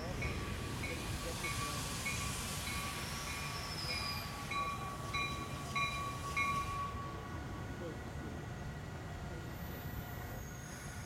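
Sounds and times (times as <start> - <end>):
train approaching rumble: 0.0 - 11.0.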